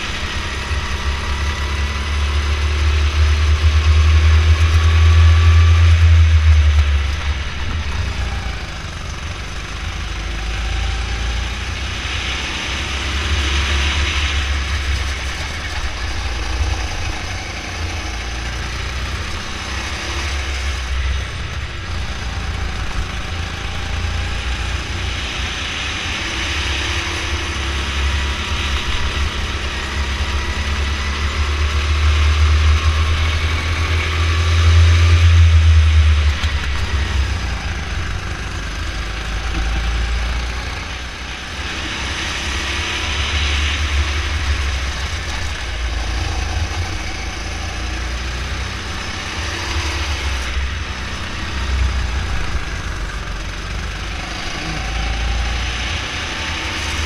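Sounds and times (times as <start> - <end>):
heavy low rumble: 0.0 - 11.7, 13.2 - 25.3, 28.3 - 41.3, 43.1 - 49.2
go-kart engine revving: 0.0 - 57.0.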